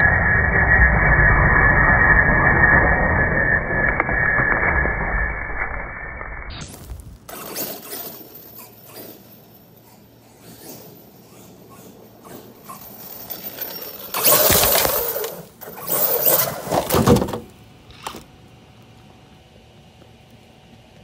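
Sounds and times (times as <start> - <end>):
rc truck rushing past: 7.3 - 18.2.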